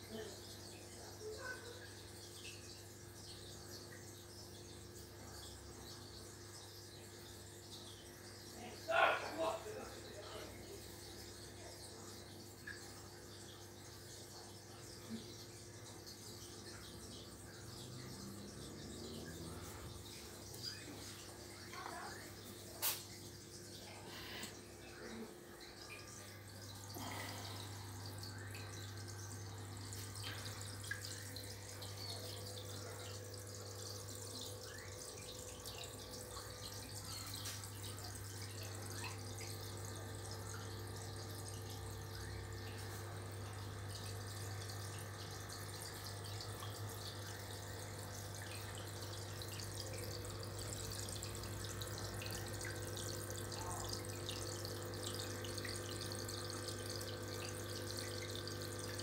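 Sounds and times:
water trickling and splashing: 0:00.0 - 0:59.0
low filter hum: 0:14.6 - 0:59.0.

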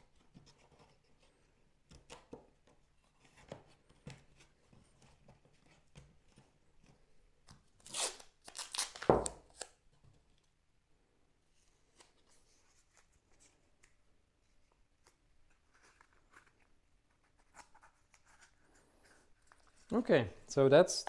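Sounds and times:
tape ripping off roll: 0:07.8 - 0:09.8.

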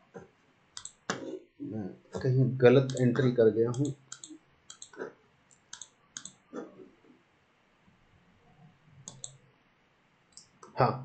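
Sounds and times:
computer mouse clicks: 0:00.8 - 0:01.4, 0:02.8 - 0:06.6, 0:09.0 - 0:09.4.

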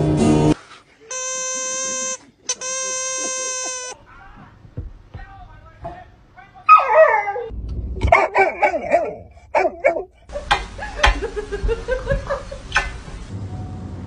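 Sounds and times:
dog barking and yelping: 0:06.7 - 0:10.4.

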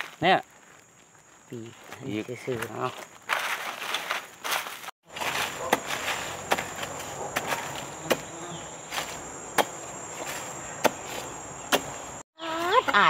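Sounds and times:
high insect buzz: 0:00.0 - 0:13.0
spade striking hard soil: 0:05.1 - 0:08.3, 0:08.9 - 0:12.0.

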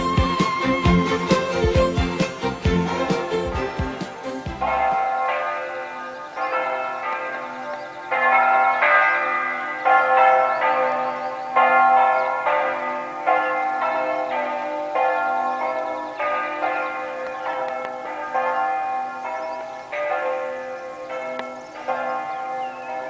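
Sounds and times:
church bells ringing: 0:00.0 - 0:23.0.

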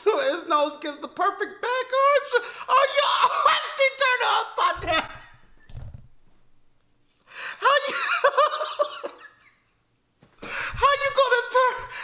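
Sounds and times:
man laughing hard: 0:07.6 - 0:09.6.

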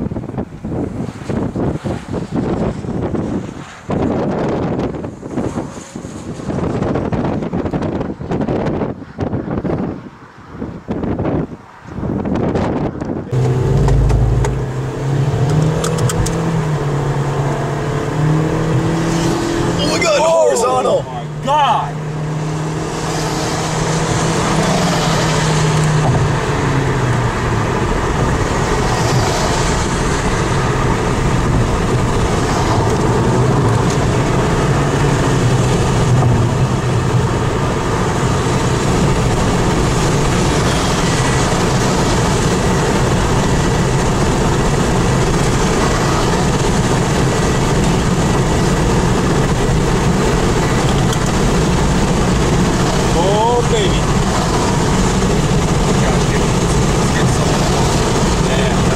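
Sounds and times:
road and wind noise: 0:00.0 - 0:58.9
low engine hum: 0:12.3 - 0:19.8, 0:20.4 - 0:58.9.

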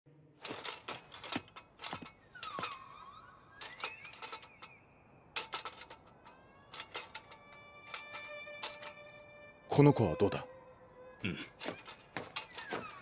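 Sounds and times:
faint gliding whistle tones: 0:02.1 - 0:05.4.

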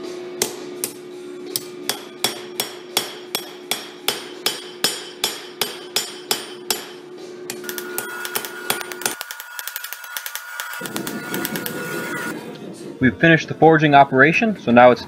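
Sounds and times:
hammer striking steel on anvil: 0:00.4 - 0:12.3.

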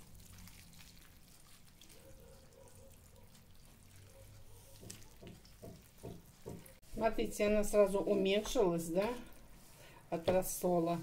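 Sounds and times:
liquid trickling: 0:00.0 - 0:06.8.

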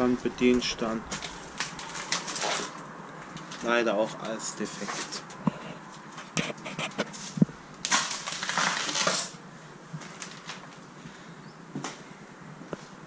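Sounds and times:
scraping crunching rustle: 0:00.0 - 0:09.4.

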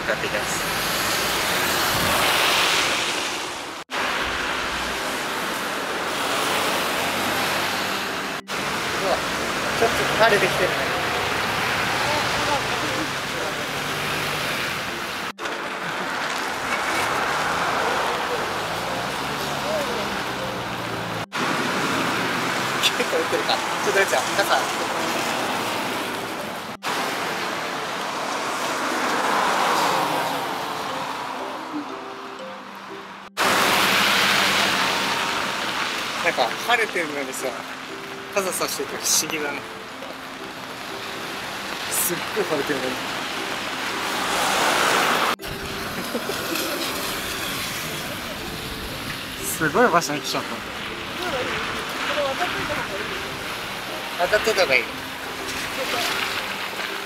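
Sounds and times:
tyres hissing on wet road: 0:00.0 - 0:31.7, 0:33.4 - 0:57.0
wind buffeting microphone: 0:01.6 - 0:02.5.

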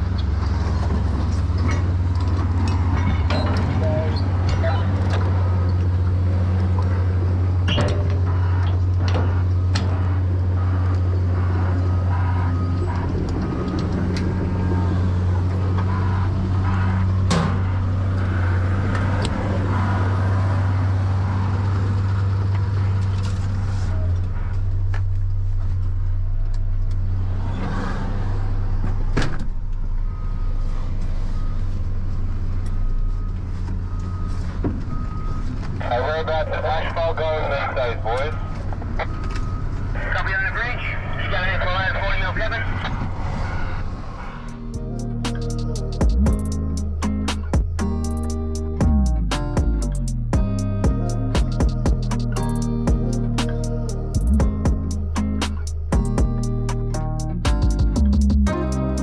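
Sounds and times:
diesel engine running under load: 0:00.0 - 0:59.0
knocks and clunks: 0:07.6 - 0:10.4.

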